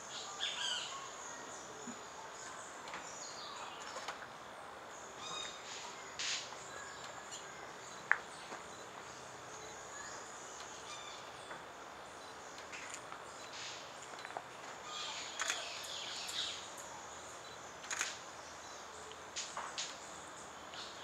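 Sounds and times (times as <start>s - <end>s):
faint bird calls: 5.1s - 11.6s, 14.8s - 18.2s.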